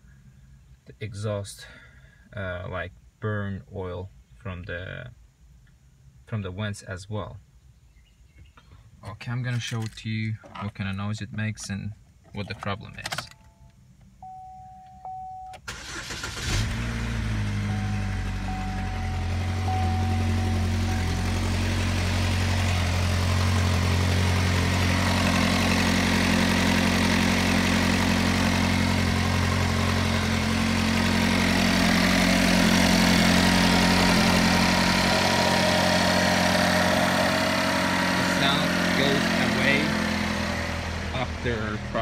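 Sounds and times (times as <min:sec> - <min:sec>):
car engine starting and running: 0:12.1 - 0:42.0.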